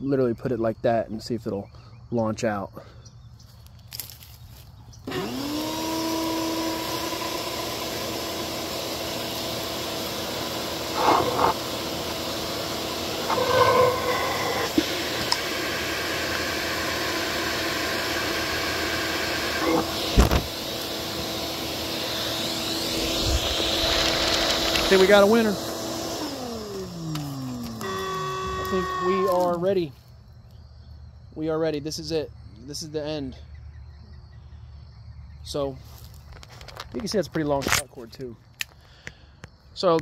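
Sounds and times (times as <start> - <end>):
vacuum cleaner motor whine: 5.1 - 29.7
sharp thump: 20.2 - 20.5.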